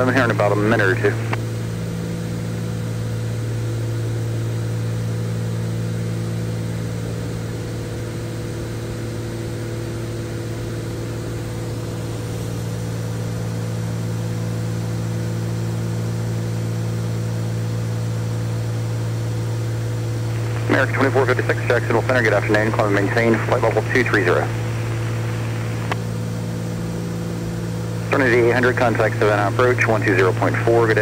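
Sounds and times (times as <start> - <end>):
propeller plane engine drone: 0.0 - 31.0
air noise: 20.0 - 30.8.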